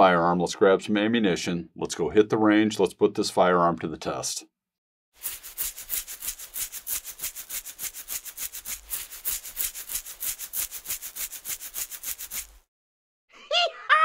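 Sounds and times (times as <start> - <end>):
scrubbing strokes: 5.2 - 12.7.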